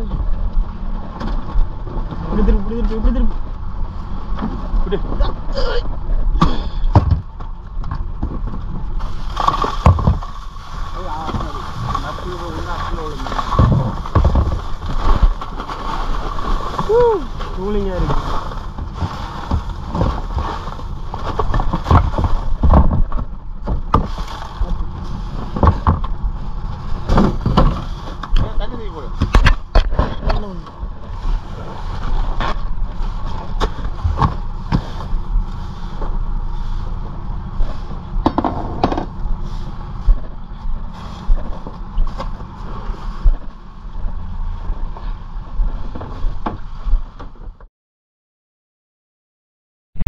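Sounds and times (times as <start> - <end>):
steady low rumble: 0.0 - 47.7
crushed ice sliding and clattering: 9.0 - 22.6.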